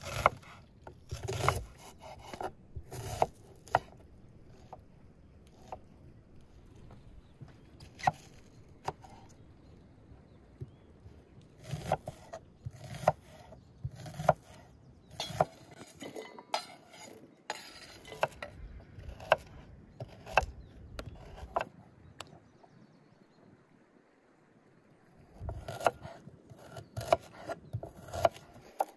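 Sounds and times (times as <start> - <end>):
knife scraping across board: 0.0 - 4.7, 15.2 - 18.5
knife chopping on wooden board: 1.1 - 4.8, 11.6 - 15.9, 19.1 - 21.7, 25.5 - 28.9.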